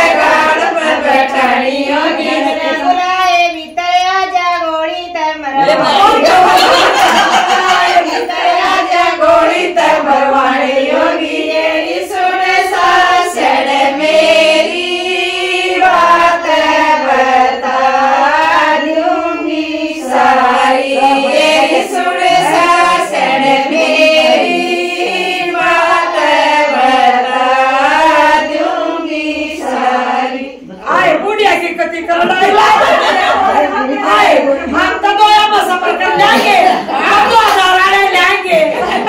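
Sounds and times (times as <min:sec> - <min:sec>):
women singing folk song: 0:00.0 - 0:03.8, 0:05.6 - 0:31.2.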